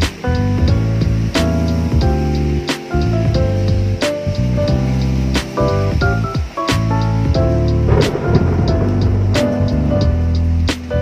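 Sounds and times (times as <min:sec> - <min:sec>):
background music with steady beat: 0:00.0 - 0:11.0
sharp drum hit: 0:07.8 - 0:10.5.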